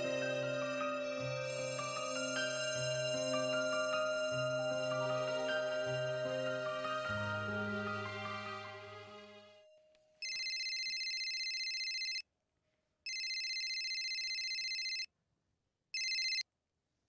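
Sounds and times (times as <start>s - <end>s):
background music: 0.0s - 9.7s
phone ringtone: 10.2s - 12.2s, 13.1s - 15.1s, 16.0s - 16.4s.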